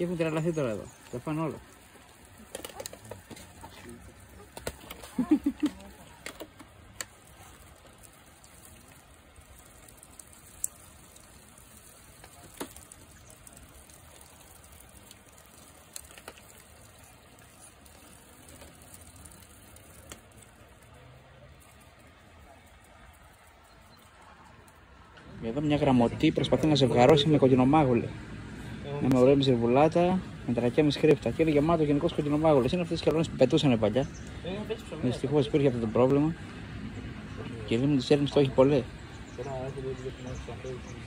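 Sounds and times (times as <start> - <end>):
ducks pecking on gravel: 0.0 - 25.2.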